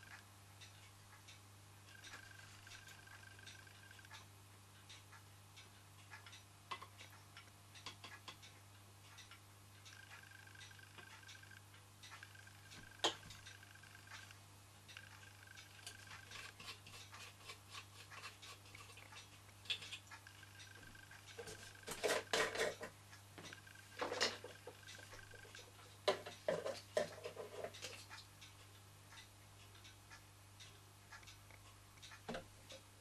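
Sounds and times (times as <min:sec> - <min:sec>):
small metal clicks and scrapes: 0:13.1 - 0:29.9.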